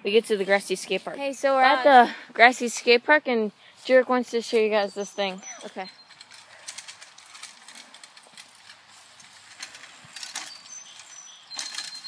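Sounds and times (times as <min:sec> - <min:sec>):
bicycle rattling over grass: 0:03.8 - 0:12.0.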